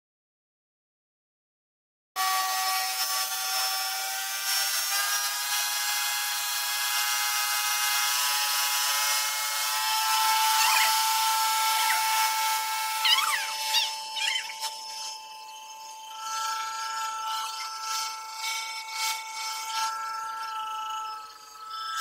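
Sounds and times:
pressure washer motor whine: 10.0s - 22.0s
short squeaky chirps: 10.5s - 11.0s, 13.0s - 18.5s.

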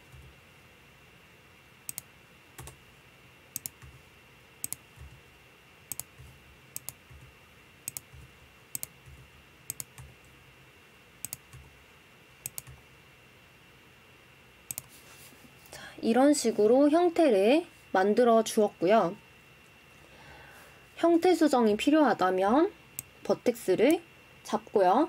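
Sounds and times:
keyboard and mouse clicking: 1.9s - 2.8s, 3.6s - 4.0s, 4.6s - 5.2s, 5.9s - 7.3s, 7.9s - 10.1s, 11.2s - 11.7s, 12.4s - 12.8s, 14.7s - 14.9s.

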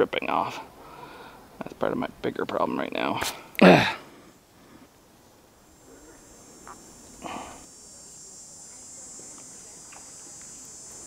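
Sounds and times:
insects chirring: 0.0s - 11.0s
faint clicks: 9.3s - 10.6s.

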